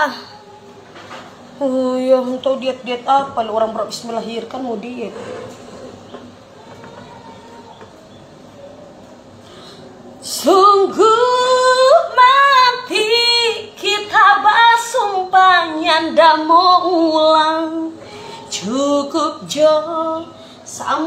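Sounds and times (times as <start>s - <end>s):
woman singing unaccompanied: 1.6s - 5.1s, 10.2s - 21.0s.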